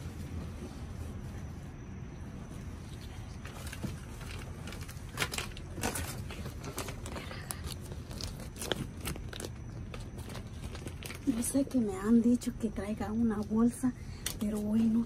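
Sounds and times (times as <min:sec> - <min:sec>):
short crackles and knocks: 0:03.4 - 0:11.4
plastic packaging crinkling: 0:03.4 - 0:11.8.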